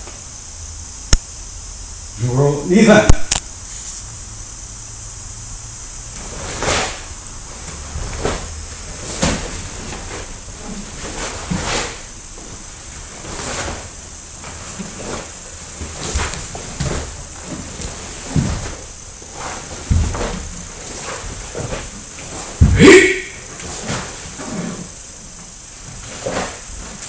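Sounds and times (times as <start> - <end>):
steady hiss: 0.0 - 27.0
cloth swishes and snaps: 6.2 - 22.6
bare feet on wooden floor: 6.2 - 22.8.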